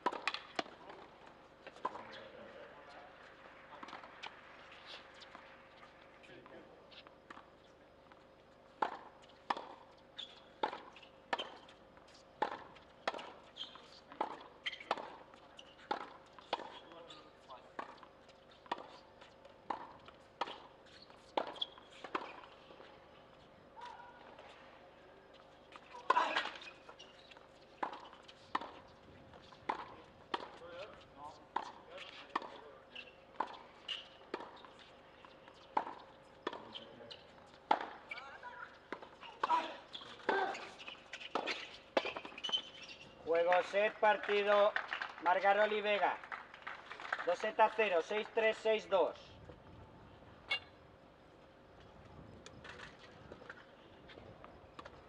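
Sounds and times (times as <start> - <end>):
tennis ball bouncing on court: 0.0 - 2.2, 8.8 - 9.9, 10.6 - 11.7, 12.4 - 13.4, 14.1 - 16.9, 17.7 - 22.5, 27.4 - 32.6, 33.3 - 34.7, 35.3 - 42.7.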